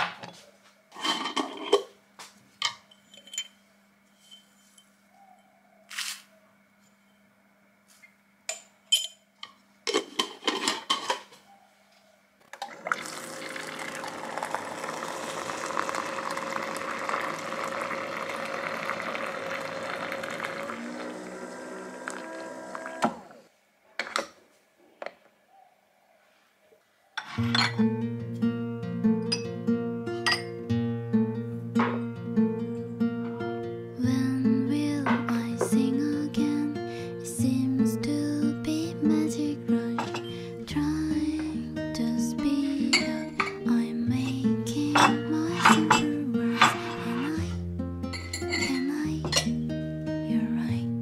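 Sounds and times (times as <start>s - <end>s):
glass pitcher clinking: 12.6s - 23.2s, 27.4s - 27.8s, 30.3s - 30.5s, 40.0s - 40.3s, 44.9s - 47.4s, 48.1s - 49.5s
water pouring into glass pitcher: 12.6s - 23.4s.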